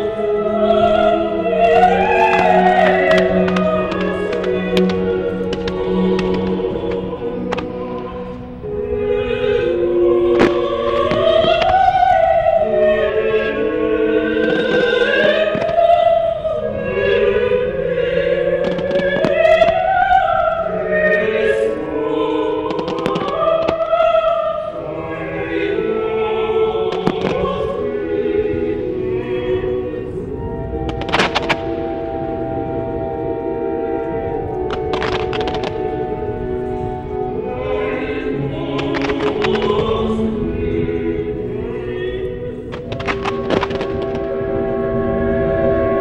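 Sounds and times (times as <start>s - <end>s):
operatic choral music: 0.0s - 46.0s
firework bangs: 1.8s - 8.4s, 10.3s - 12.3s, 14.3s - 16.0s, 18.5s - 20.4s, 22.7s - 24.4s, 26.9s - 27.9s, 30.7s - 32.1s, 34.7s - 37.0s, 38.5s - 40.2s, 42.5s - 44.9s.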